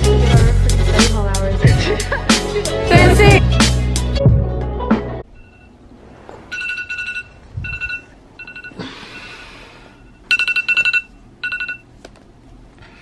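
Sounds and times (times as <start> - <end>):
phone alarm beeping: 6.5 - 8.8, 10.0 - 11.9.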